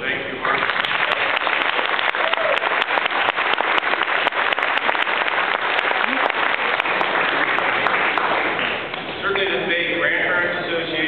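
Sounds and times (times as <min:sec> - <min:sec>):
audience applauding: 0:00.3 - 0:09.1.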